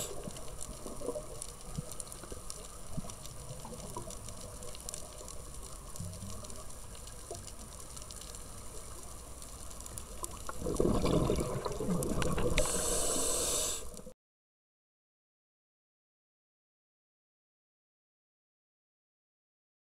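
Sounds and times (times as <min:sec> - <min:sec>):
faint clicks: 0:00.0 - 0:11.0, 0:11.9 - 0:14.1
rushing water and bubbles: 0:00.0 - 0:14.1
underwater water noise: 0:00.0 - 0:14.1.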